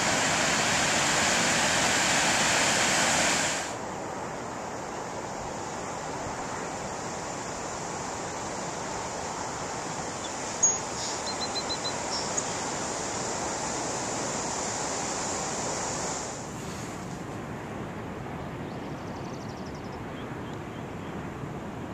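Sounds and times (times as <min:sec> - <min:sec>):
ocean surf breaking: 0:00.0 - 0:04.5
quick high chirps: 0:10.2 - 0:12.6.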